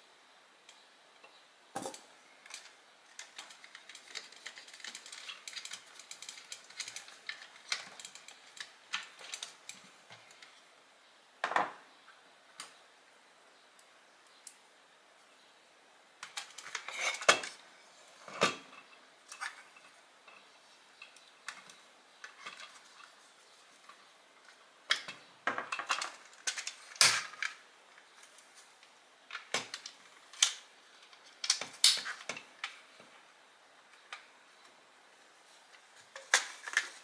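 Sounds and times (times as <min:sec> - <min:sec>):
plastic and metal parts clicking: 0:02.4 - 0:10.4.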